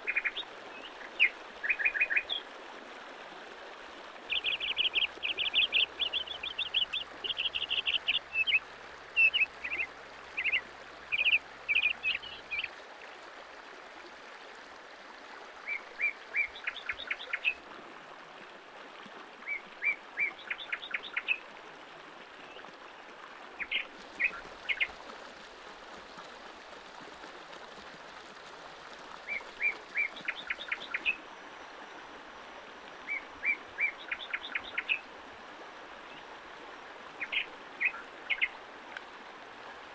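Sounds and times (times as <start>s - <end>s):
stream rushing over rocks: 0.0s - 39.9s
bird chirping: 37.2s - 38.5s.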